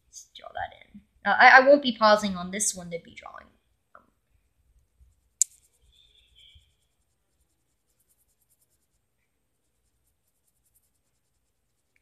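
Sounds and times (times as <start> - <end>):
marker scratching on paper: 5.0 - 9.0, 9.6 - 12.0.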